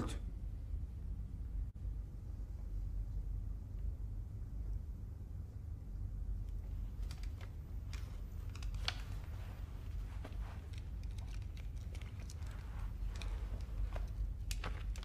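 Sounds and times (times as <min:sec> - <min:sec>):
low room rumble: 0:00.0 - 0:15.0
glasses handling clicks and rustles: 0:06.4 - 0:15.0.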